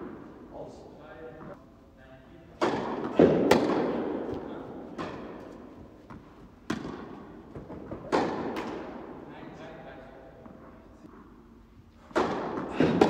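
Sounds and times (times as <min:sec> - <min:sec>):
tennis ball pops in echoing hall: 0:02.6 - 0:09.3, 0:12.0 - 0:13.0.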